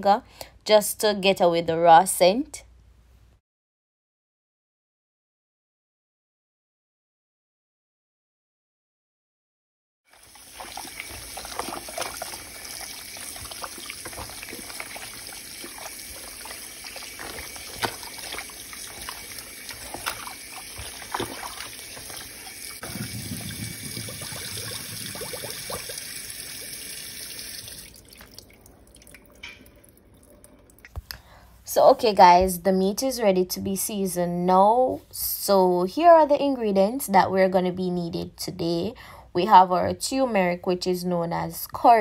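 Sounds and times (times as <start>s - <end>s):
water splashing on meat: 10.1s - 29.2s
tap water running into a bowl: 10.1s - 30.9s
water dripping: 10.1s - 31.1s.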